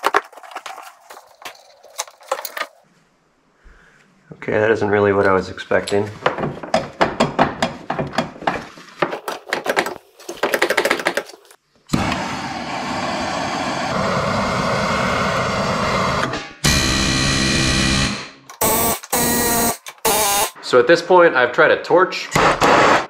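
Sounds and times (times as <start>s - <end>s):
knocks and clatter: 6.2s - 11.6s.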